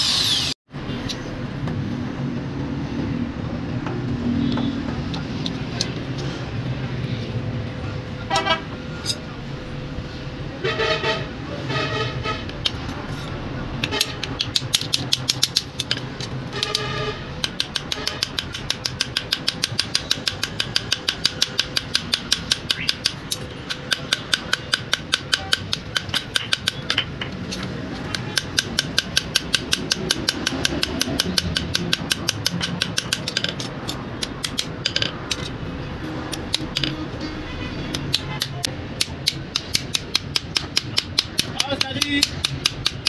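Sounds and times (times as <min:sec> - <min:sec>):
small hammer tapping metal pins: 0:13.8 - 0:35.5, 0:36.3 - 0:37.0, 0:37.9 - 0:43.0.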